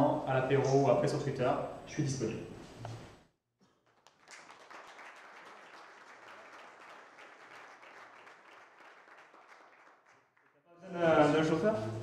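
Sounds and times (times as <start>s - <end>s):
faint audience applause: 3.7s - 10.8s.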